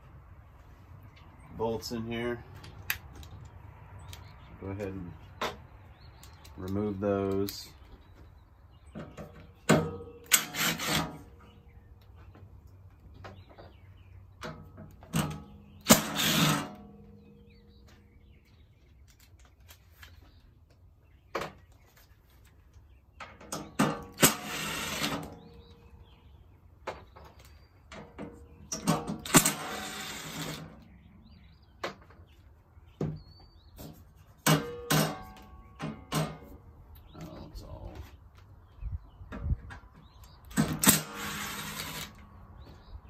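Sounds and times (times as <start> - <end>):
impact driver running: 10.3 - 11.2, 15.9 - 16.8, 24.2 - 25.3, 29.2 - 30.8, 40.6 - 42.2.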